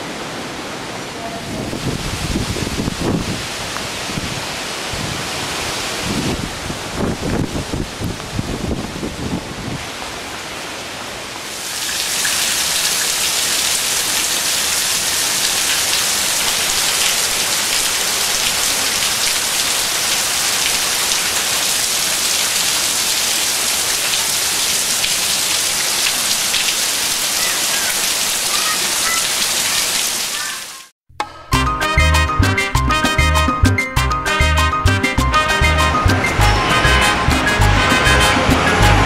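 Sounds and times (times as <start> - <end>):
heavy rain on leaves and lawn: 0.0 - 30.9
wind: 0.0 - 31.3, 34.8 - 39.0.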